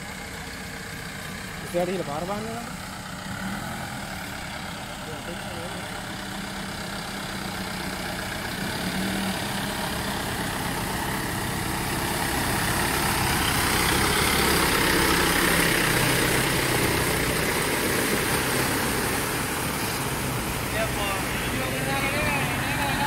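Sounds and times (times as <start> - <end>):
truck engine at low revs: 0.0 - 23.0
mud and water churning: 8.3 - 23.0.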